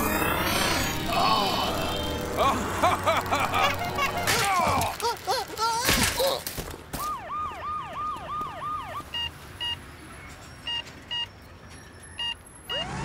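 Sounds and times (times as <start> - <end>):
cartoon ambulance siren: 7.0 - 9.3
heart monitor beeps: 10.6 - 11.3, 12.2 - 12.9.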